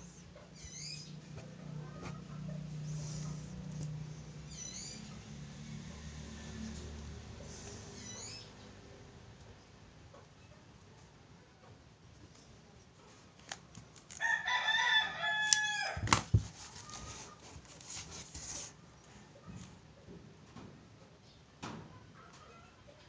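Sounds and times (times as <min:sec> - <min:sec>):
rooster crowing: 0:14.2 - 0:16.1
paper rustling: 0:16.0 - 0:18.8.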